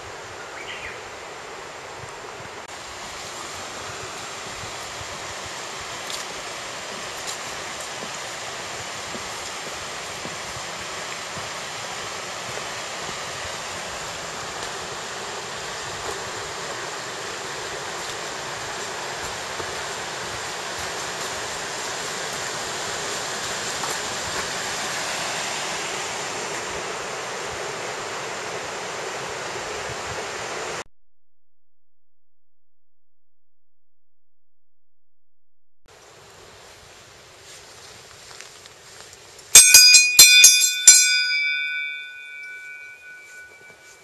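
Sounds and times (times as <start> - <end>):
river rushing over rocks: 0.1 - 30.8, 39.8 - 44.0.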